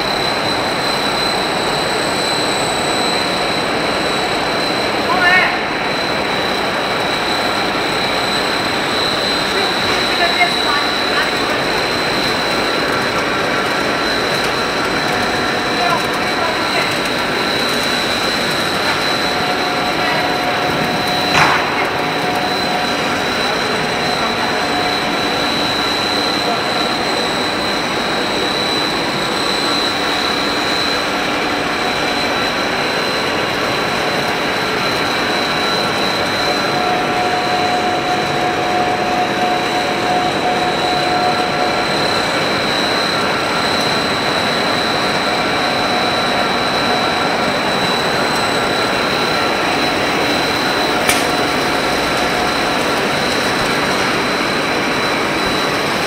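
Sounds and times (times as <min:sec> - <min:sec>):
extrusion machine running: 0:00.0 - 0:56.0
high machine whine: 0:00.0 - 0:56.0.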